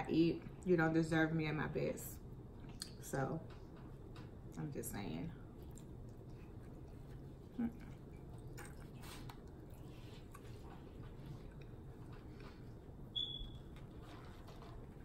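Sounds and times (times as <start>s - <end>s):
chewing mouth sounds: 5.5s - 12.9s
short high squeak: 13.2s - 13.6s.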